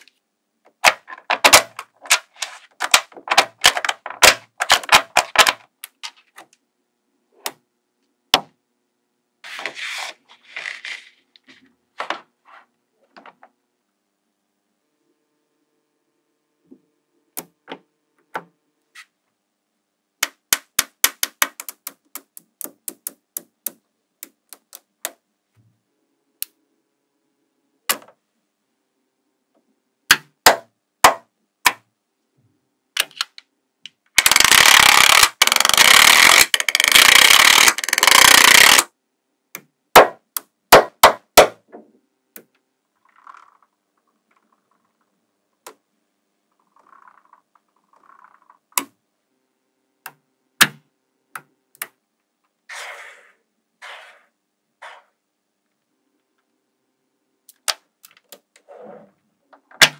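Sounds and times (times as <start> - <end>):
balls rattling and scraping: 0.7 - 6.6, 9.4 - 13.6, 34.2 - 38.8, 43.0 - 45.1
magnetic balls clicking together: 20.2 - 25.2, 33.0 - 38.9.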